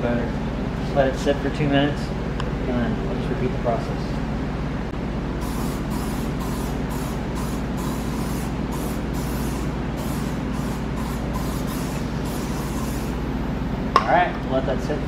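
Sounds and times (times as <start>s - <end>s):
steady low hum: 0.0s - 15.0s
aerosol spray hissing bursts: 5.4s - 13.2s.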